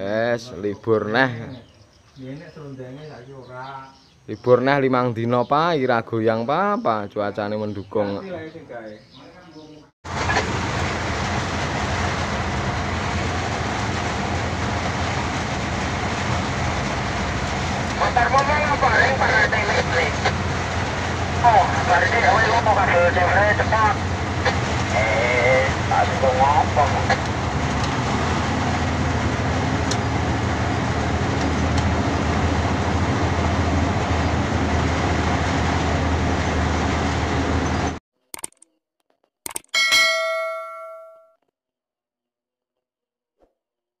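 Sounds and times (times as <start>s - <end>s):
cab rattling on rough road: 10.1s - 38.0s
truck diesel engine running: 10.1s - 38.0s.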